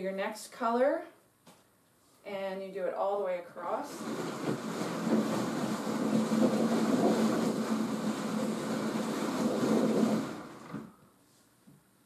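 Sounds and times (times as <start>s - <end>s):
drum carder running: 3.8s - 11.0s.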